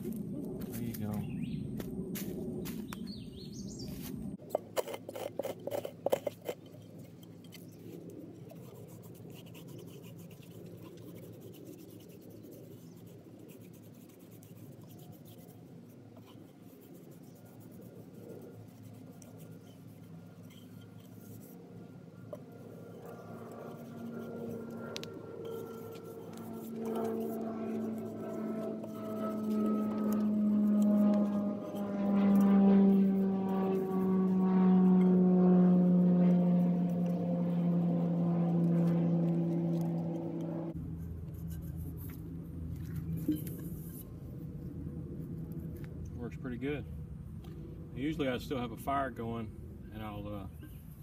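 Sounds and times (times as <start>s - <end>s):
grit scraping a steel cup: 4.5s - 21.6s, 22.2s - 32.5s, 40.9s - 44.3s.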